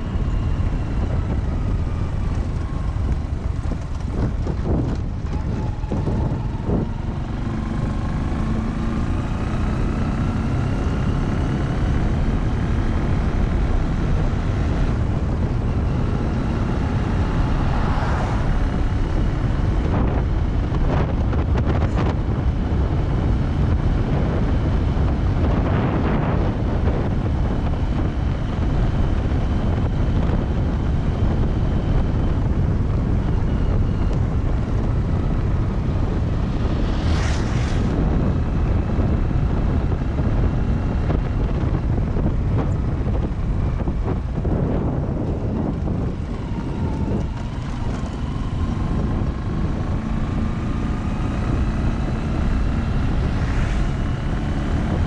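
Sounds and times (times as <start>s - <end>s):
vehicle engine: 0.0s - 55.0s
vehicles passing: 0.0s - 55.0s
wind rushing over microphone: 0.0s - 55.0s.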